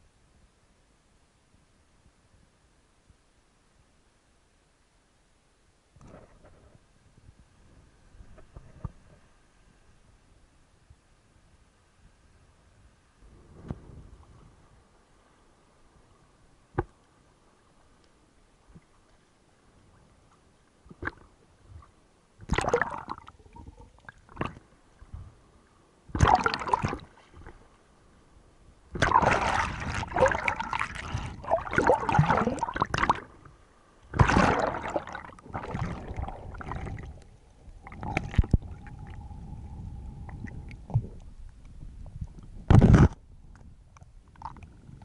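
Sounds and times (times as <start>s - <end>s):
sea water sloshing and gurgling: 18.6s - 45.0s.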